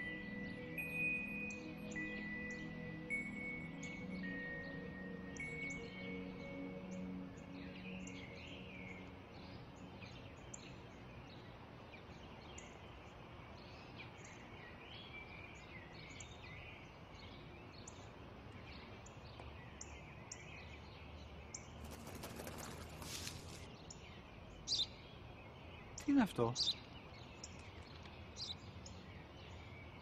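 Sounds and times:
garden ambience: 0.0 - 30.0
small birds chirping: 0.0 - 30.0
brief rustle: 21.9 - 23.7.

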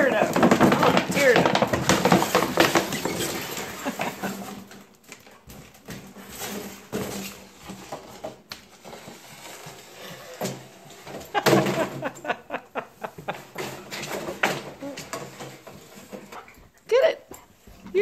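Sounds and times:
plastic tube clattering on floor: 0.0 - 16.6.

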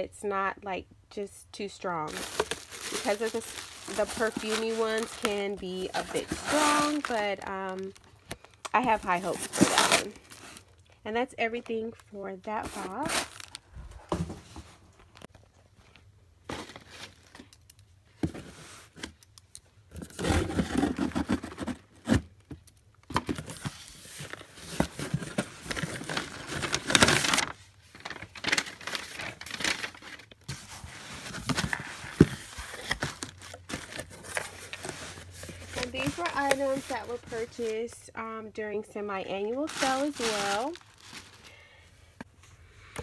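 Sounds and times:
plastic packing crinkling: 2.1 - 10.8, 12.6 - 13.6, 24.2 - 37.7, 39.6 - 41.8
cardboard box being opened: 30.5 - 37.7.

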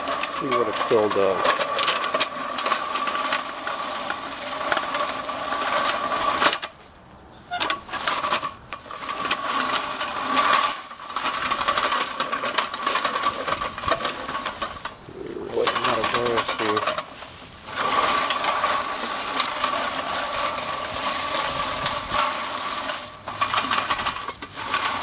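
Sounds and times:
reel mower blades clattering: 0.0 - 25.0.

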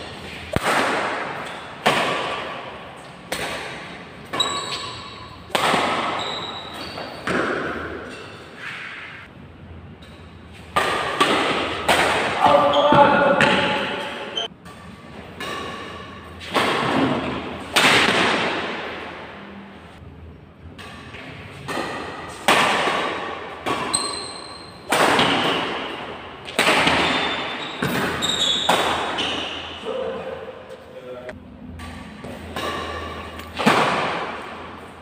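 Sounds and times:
racket hitting shuttlecock: 0.0 - 9.3, 10.0 - 19.3, 20.6 - 29.8, 31.8 - 35.0
shoes squeaking on court: 4.2 - 9.2, 12.5 - 14.6, 23.8 - 24.9, 26.8 - 29.8.

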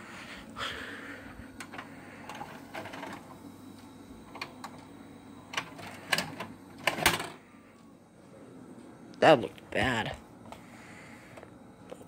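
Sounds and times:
faint low hum: 0.0 - 12.0
tape deck mechanism clicking: 5.5 - 7.4.

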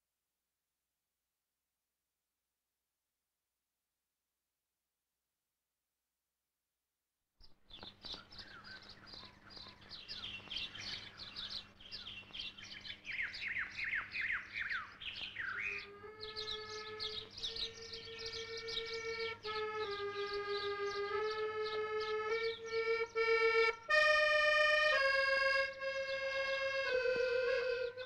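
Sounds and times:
birds chirping and singing: 7.4 - 24.1.

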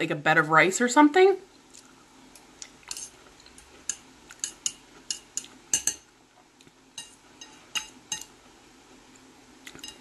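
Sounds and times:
metal fork clinking on plate: 3.9 - 6.0, 7.0 - 8.3, 9.7 - 10.0.

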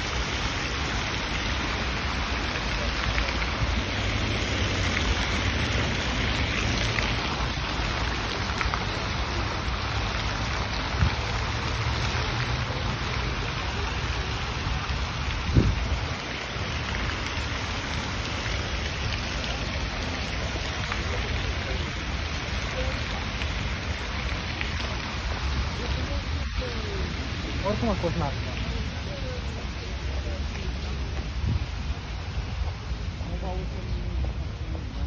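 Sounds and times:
wind rumble on microphone: 14.6 - 16.4, 30.8 - 33.1.

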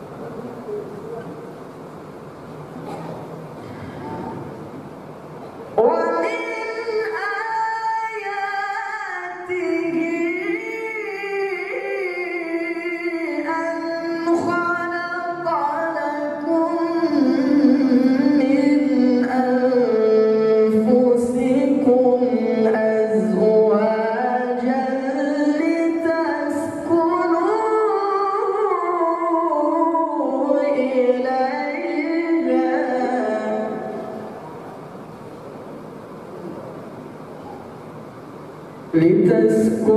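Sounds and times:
man chanting: 5.8 - 34.3, 38.9 - 39.9.

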